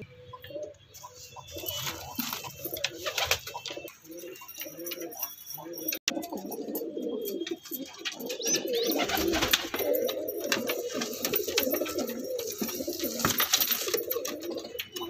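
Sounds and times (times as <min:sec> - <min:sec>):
pigeons cooing: 0:00.0 - 0:15.0.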